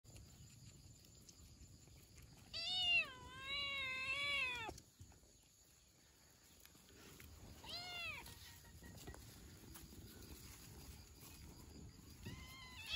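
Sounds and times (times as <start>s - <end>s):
cat meowing: 2.5s - 4.7s, 7.6s - 8.3s.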